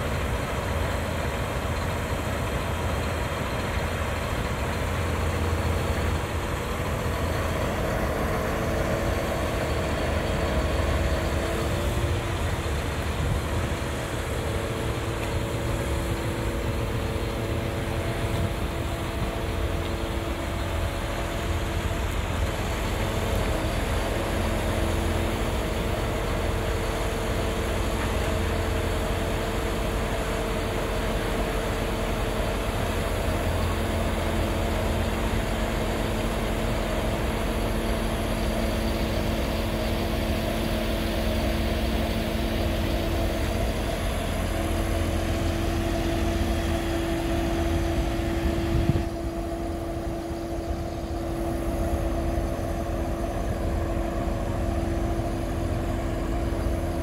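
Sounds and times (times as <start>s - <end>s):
diesel truck engine running: 0.0s - 57.0s
hydraulic crane whining: 0.0s - 57.0s.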